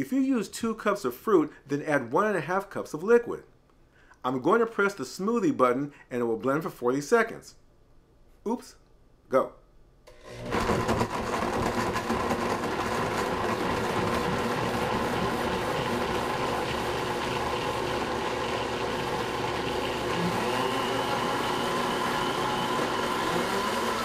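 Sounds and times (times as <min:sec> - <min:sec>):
blender motor running: 0:10.1 - 0:24.0.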